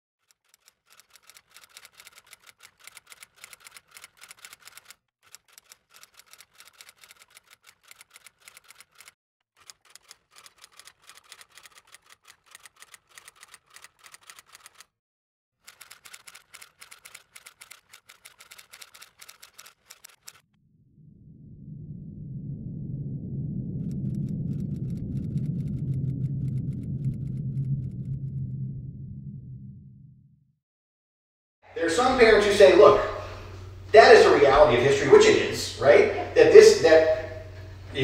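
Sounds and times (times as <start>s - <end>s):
typewriter key clacks: 9.7s - 14.8s.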